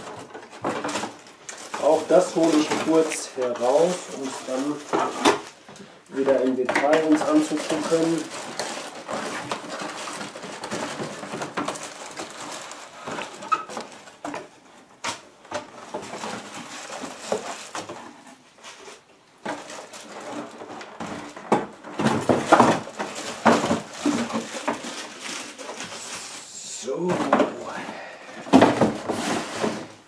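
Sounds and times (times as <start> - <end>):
cardboard and plastic rustling: 0.0 - 30.0.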